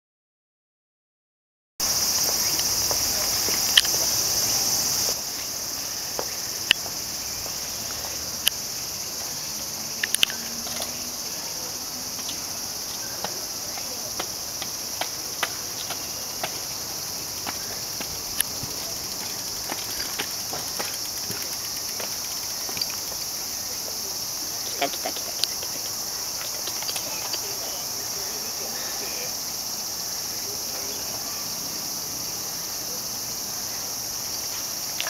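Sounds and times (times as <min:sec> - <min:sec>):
insects shrilling: 0:01.8 - 0:35.0
sharp clicks: 0:10.0 - 0:11.0.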